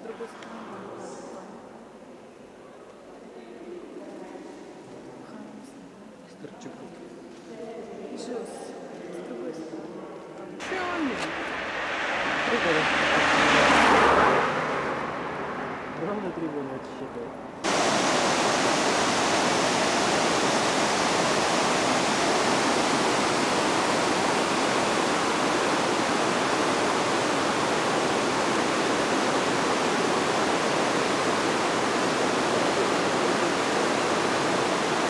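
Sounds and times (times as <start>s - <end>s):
water rushing over a weir: 10.6s - 16.7s, 17.6s - 35.0s.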